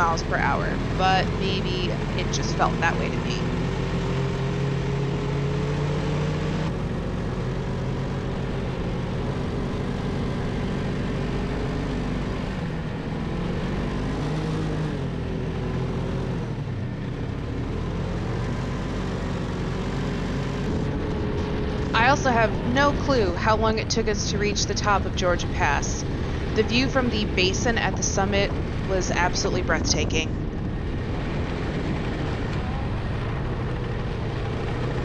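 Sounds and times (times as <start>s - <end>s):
snowmobile engine running: 0.0s - 35.0s.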